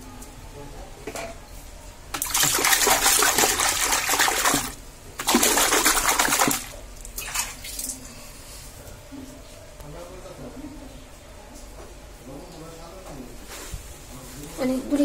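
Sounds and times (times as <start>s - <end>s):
water pouring into soapy water: 2.2s - 6.8s.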